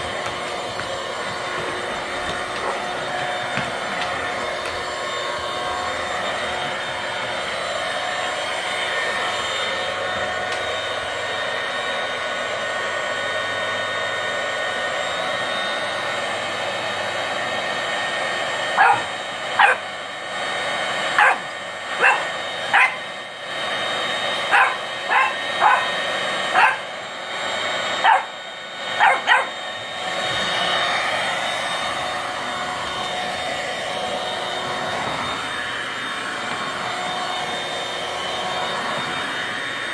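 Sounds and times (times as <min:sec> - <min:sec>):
vacuum cleaner whining: 0:00.0 - 0:39.9
puppy barking: 0:00.8 - 0:03.6, 0:18.7 - 0:19.9, 0:21.1 - 0:23.1, 0:24.5 - 0:26.9, 0:28.0 - 0:29.6.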